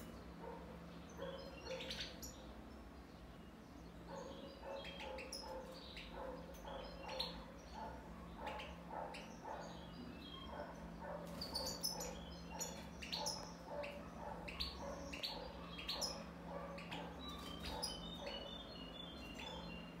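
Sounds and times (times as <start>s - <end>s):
goldfinch twittering song: 1.0s - 20.0s.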